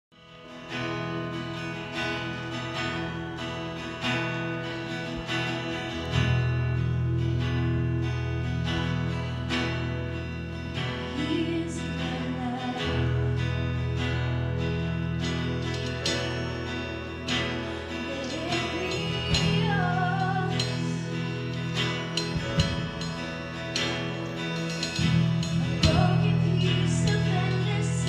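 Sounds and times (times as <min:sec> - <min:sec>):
acoustic guitar strumming: 0:00.2 - 0:28.0
woman singing: 0:11.0 - 0:13.8, 0:18.0 - 0:21.3, 0:25.6 - 0:28.0.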